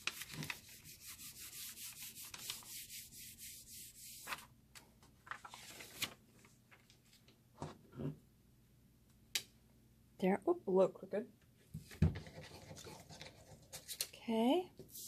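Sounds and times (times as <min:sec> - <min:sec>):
hands rubbing over paper: 0:00.0 - 0:04.4.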